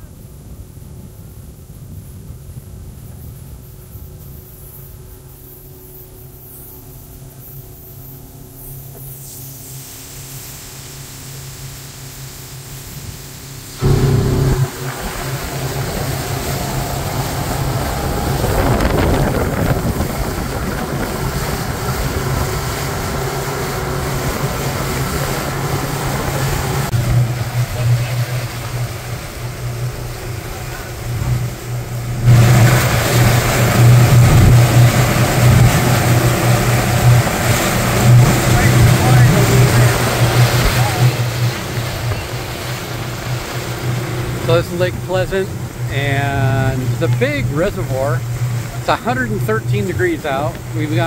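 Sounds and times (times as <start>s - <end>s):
wind and water rushing: 9.6s - 51.0s
boat motor humming: 10.5s - 51.0s.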